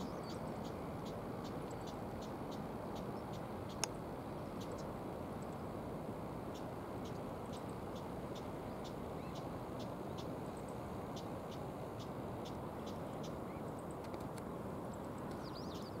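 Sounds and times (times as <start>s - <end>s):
bird chirping: 0.0s - 3.9s, 4.6s - 5.0s, 6.5s - 13.9s, 15.2s - 16.0s
faint high ticks: 0.6s - 4.0s, 4.6s - 5.6s, 6.6s - 10.8s, 11.5s - 15.5s.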